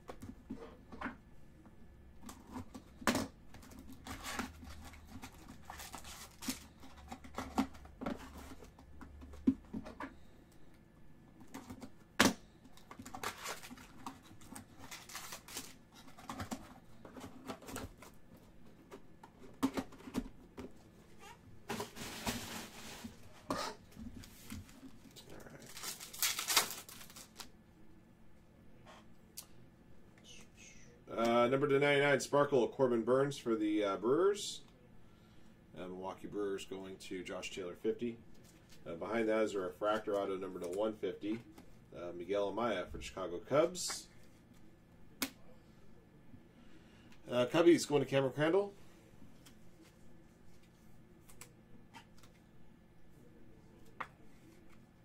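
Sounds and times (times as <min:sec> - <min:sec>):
foil wrapper tearing and crinkling: 0:14.8 - 0:15.8, 0:25.4 - 0:27.5.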